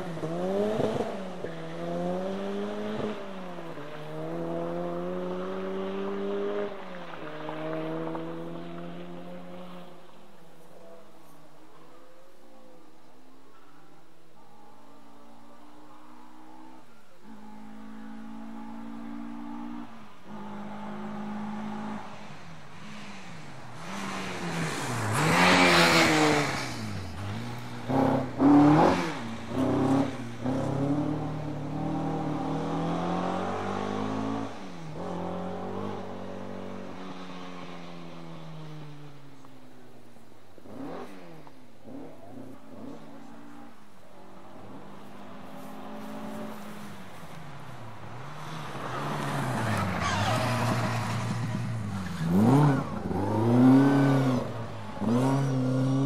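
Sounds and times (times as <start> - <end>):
rally car engine passing: 0.0 - 11.1, 14.4 - 56.0.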